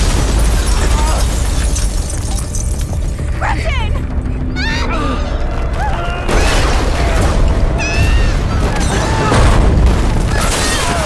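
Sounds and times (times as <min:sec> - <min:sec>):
building crashing apart: 0:00.0 - 0:03.1, 0:05.6 - 0:11.0
debris falling: 0:00.0 - 0:03.3, 0:05.5 - 0:11.0
dramatic music: 0:00.0 - 0:11.0.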